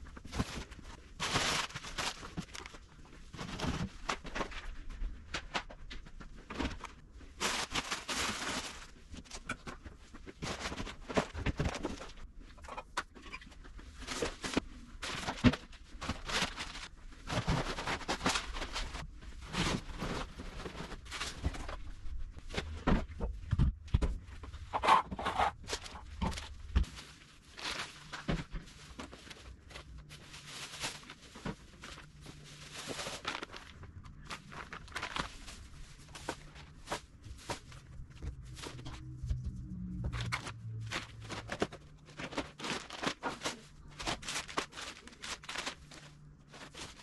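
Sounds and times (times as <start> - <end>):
food packaging rustling: 0.1 - 4.8, 6.3 - 12.2, 24.8 - 39.2, 40.1 - 47.0
low hum: 35.6 - 42.2.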